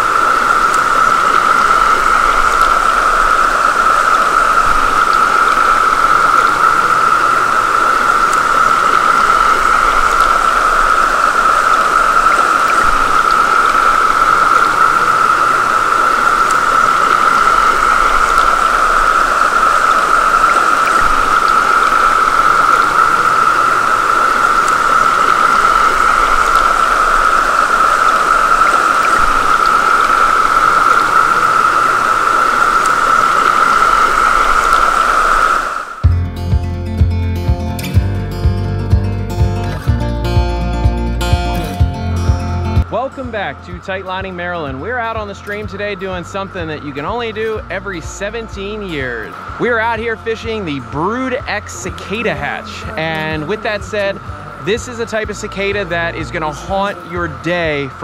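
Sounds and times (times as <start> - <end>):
cicadas droning chorus: 0.0 - 36.0, 44.9 - 57.8
stream rushing: 0.0 - 36.6, 38.8 - 58.0.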